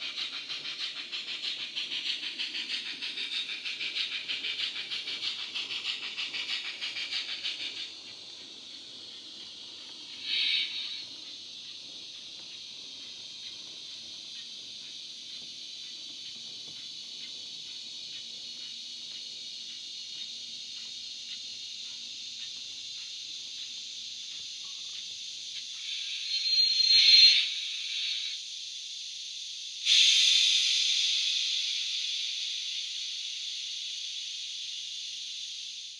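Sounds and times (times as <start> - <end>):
steam hissing: 0.0 - 35.9
loud blast of steam: 10.2 - 11.0, 29.9 - 32.6.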